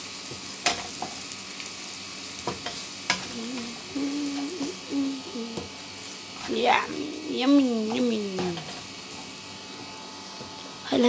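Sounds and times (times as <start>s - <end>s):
vegetables sizzling in frying pan: 0.0s - 11.0s
wavering low hum: 3.3s - 5.6s.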